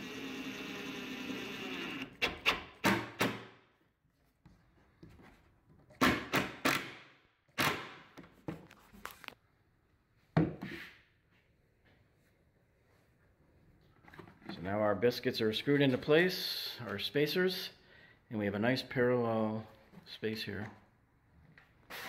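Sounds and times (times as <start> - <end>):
impact driver motor: 0.0 - 2.5.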